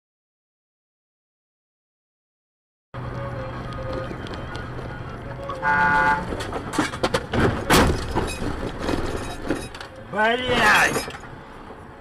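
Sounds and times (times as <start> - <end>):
road and engine hum: 3.0 - 12.0
car horn blaring: 5.4 - 6.4
cars crashing: 5.6 - 11.4.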